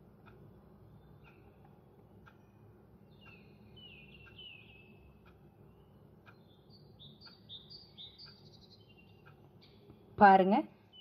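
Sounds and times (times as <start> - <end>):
birds chirping: 3.0 - 10.0, 10.8 - 11.0
soft clicks: 6.2 - 10.0.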